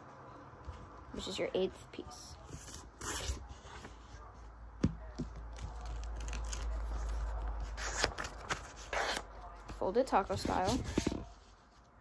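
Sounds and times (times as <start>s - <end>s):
paper rustling: 5.5s - 12.0s.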